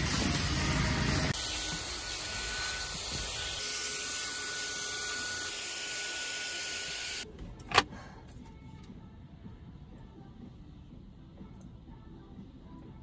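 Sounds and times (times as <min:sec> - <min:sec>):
vacuum cleaner running: 0:00.0 - 0:07.2.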